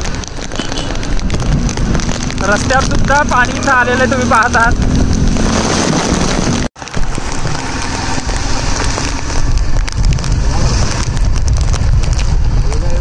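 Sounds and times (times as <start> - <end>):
heavy rain pouring: 0.0 - 13.0
wind rumbling on microphone: 0.0 - 13.0.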